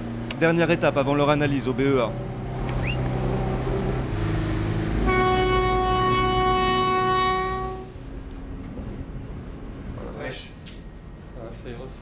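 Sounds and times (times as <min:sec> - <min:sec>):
ship's horn blast: 0:02.8 - 0:08.0.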